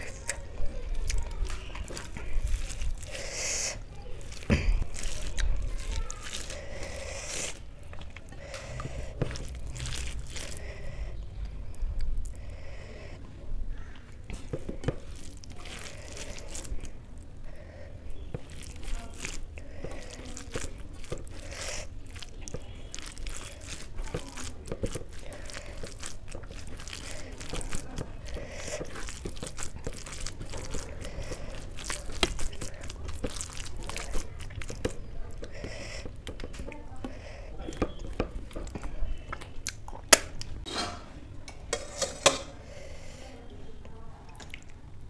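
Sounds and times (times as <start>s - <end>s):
chewing and lip smacks: 0.0s - 12.6s, 18.2s - 40.6s, 44.2s - 45.0s
hand squishing rice on plate: 0.0s - 13.1s, 13.8s - 40.6s
low steady hum: 0.0s - 45.0s.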